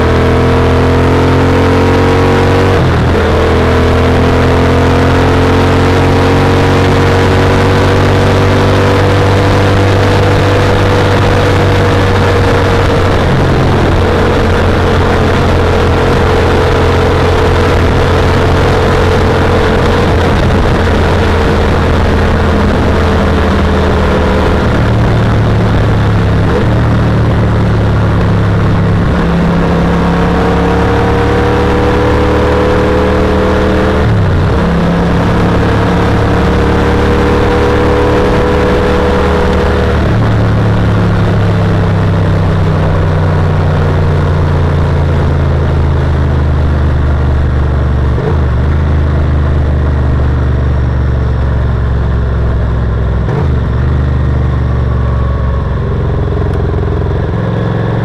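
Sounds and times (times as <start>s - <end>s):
wind rush: 5.8s - 51.6s.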